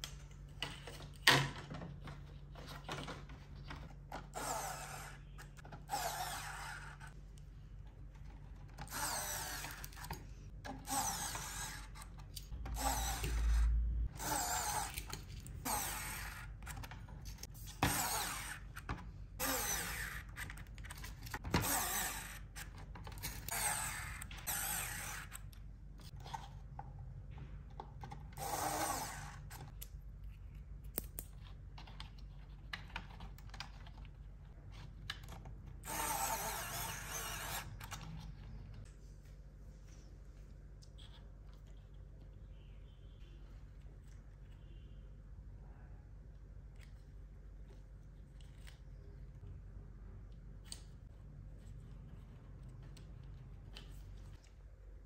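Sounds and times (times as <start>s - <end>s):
electric screwdriver whirring: 4.3s - 5.2s, 5.9s - 7.0s, 8.8s - 10.0s, 10.8s - 12.0s, 12.7s - 16.5s, 17.7s - 18.6s, 19.4s - 20.3s, 21.5s - 22.6s, 23.3s - 25.4s, 28.4s - 29.6s, 35.8s - 38.0s.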